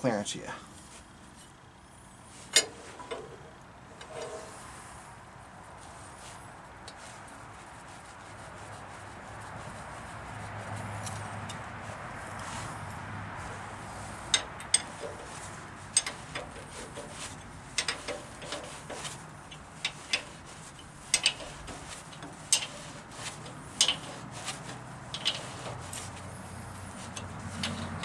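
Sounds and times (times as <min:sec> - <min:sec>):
wrench clicking on nut: 0:21.1 - 0:21.4.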